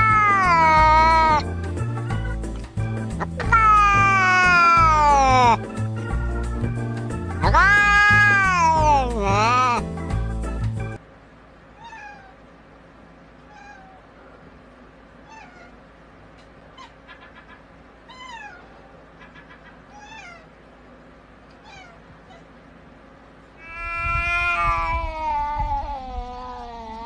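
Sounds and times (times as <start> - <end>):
cat meowing: 0.0 - 1.4, 3.2 - 5.6, 7.4 - 9.8, 11.8 - 12.4, 13.5 - 14.1, 15.2 - 15.8, 18.1 - 18.8, 19.9 - 20.5, 21.6 - 22.5, 23.6 - 27.0.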